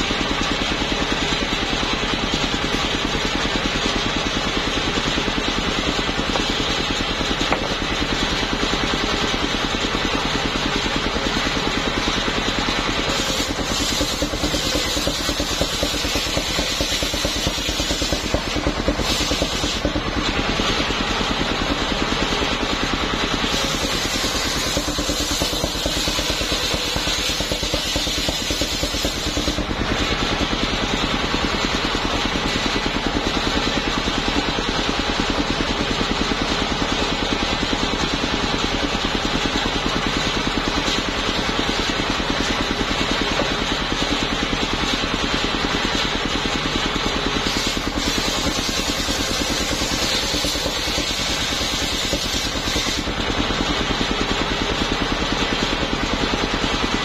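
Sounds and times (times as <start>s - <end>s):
sawmill engine running: 0.0s - 57.0s
saw blade ripping wood: 13.0s - 20.4s, 23.4s - 29.7s, 47.4s - 53.1s.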